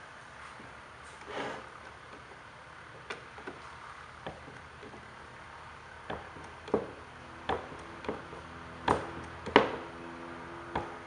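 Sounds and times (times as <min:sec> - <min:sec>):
sharp knocks and taps on metal: 0:04.2 - 0:05.0, 0:06.0 - 0:09.9, 0:10.7 - 0:11.0.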